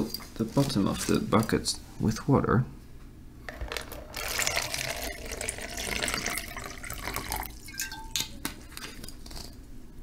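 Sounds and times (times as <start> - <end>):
water running into plastic bucket: 3.7 - 8.4.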